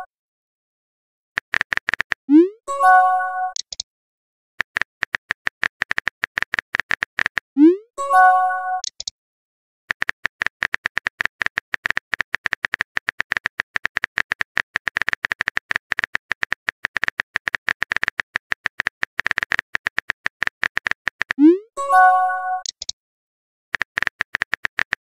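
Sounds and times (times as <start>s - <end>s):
phone keyboard typing clicks: 1.4s - 2.3s, 3.5s - 3.8s, 4.6s - 7.5s, 8.8s - 9.1s, 9.9s - 21.4s, 22.6s - 23.0s, 23.8s - 25.0s.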